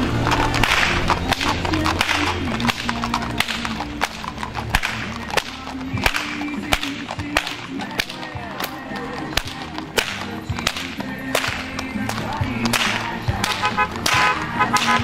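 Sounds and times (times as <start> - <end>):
faint background music: 0.0 - 15.0
whips cracking: 0.6 - 3.8, 4.7 - 8.1, 9.4 - 11.7, 12.7 - 15.0.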